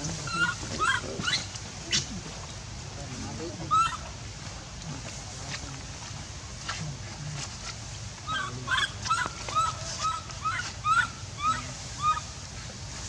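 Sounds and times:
infant monkey crying: 0:00.2 - 0:01.5, 0:03.7 - 0:04.1, 0:08.3 - 0:12.4.

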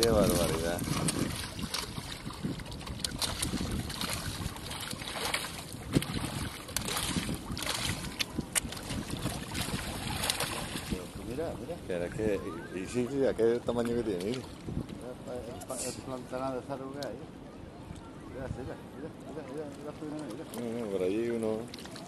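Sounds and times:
fish splashing in water: 0:00.0 - 0:11.2, 0:20.0 - 0:22.0
lapping water: 0:00.0 - 0:16.2, 0:19.2 - 0:22.0
wind on microphone: 0:00.0 - 0:16.2, 0:17.4 - 0:19.2.

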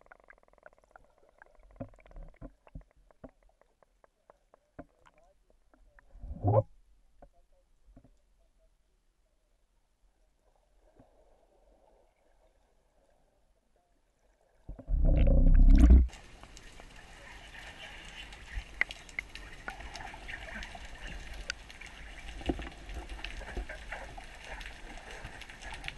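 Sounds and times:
clicks and crackles: 0:00.0 - 0:06.6, 0:18.0 - 0:25.9
low rumbling water burst: 0:14.7 - 0:16.4.

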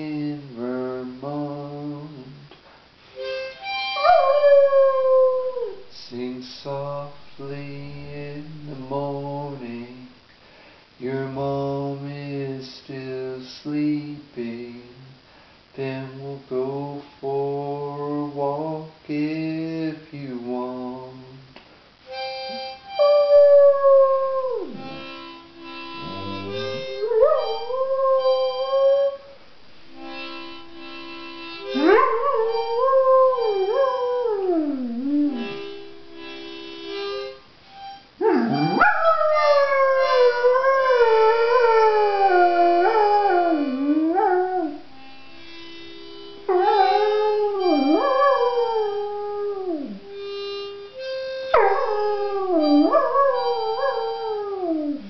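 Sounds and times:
held instrument chords: 0:03.2 - 0:09.7, 0:22.1 - 0:55.0
dog howling: 0:04.0 - 0:05.8, 0:23.0 - 0:25.0, 0:26.1 - 0:29.3, 0:31.7 - 0:35.7, 0:38.2 - 0:44.8, 0:46.5 - 0:50.1, 0:51.6 - 0:55.0.

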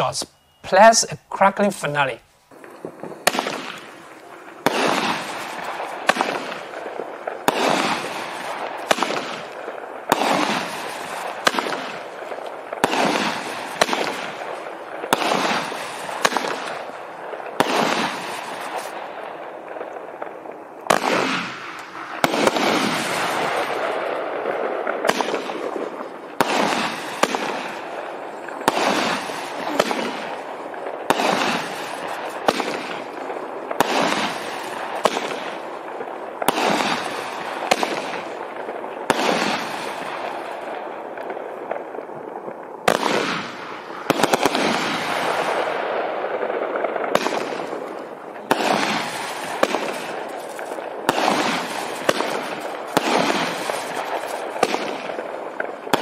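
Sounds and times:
fireworks cake firing shots: 0:01.9 - 0:56.0.

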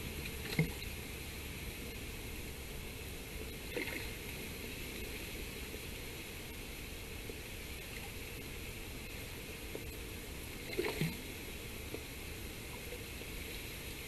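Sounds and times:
river water hissing: 0:00.0 - 0:14.0
wind: 0:00.0 - 0:14.0
faint fish splash: 0:00.2 - 0:01.0, 0:03.4 - 0:05.8, 0:09.3 - 0:13.9.

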